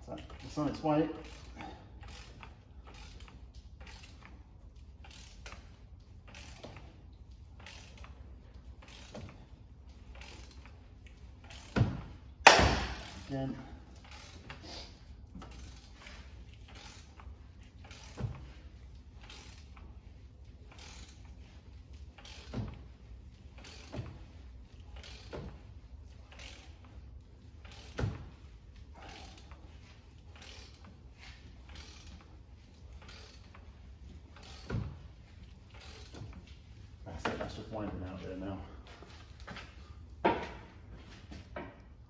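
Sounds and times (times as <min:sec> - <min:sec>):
ratchet wrench clicking: 0:00.3 - 0:09.4, 0:10.0 - 0:12.0, 0:13.9 - 0:14.6, 0:15.4 - 0:19.9, 0:20.7 - 0:22.8, 0:23.5 - 0:26.9, 0:27.6 - 0:28.2, 0:30.2 - 0:31.0, 0:31.6 - 0:33.7, 0:34.4 - 0:34.9, 0:35.5 - 0:36.3.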